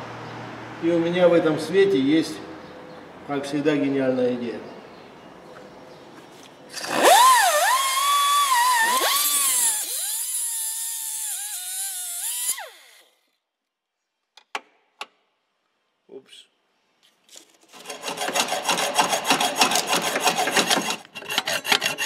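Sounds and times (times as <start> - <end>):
cut-off wheel grinding steel: 6.7 - 13.2, 17.7 - 22.0.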